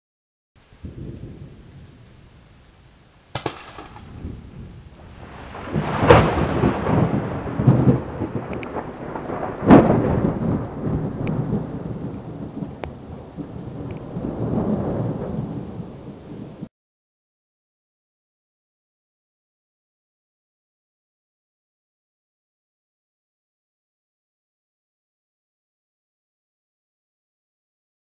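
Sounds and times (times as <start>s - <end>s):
rolling thunder rumble: 0.6s - 16.7s
thunder claps: 3.3s - 16.7s
thunder crack: 3.3s - 16.7s.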